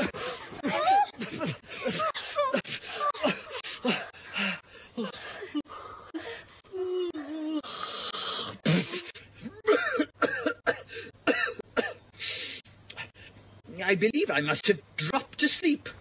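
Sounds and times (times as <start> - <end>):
breathy hiss: 1.5 - 9.4, 12.1 - 13.4
man humming: 6.7 - 9.7
man coughing: 8.6 - 12.0
man clearing throat: 9.6 - 12.0.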